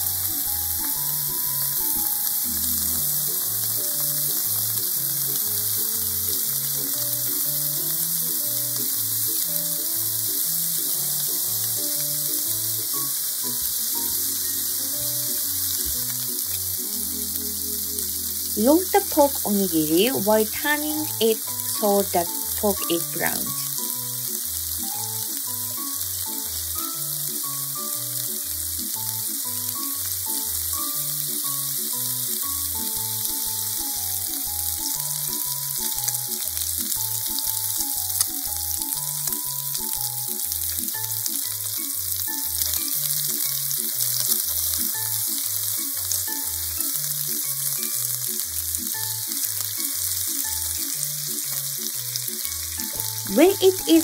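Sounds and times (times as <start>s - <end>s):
food sizzling in oil: 0.0s - 54.0s.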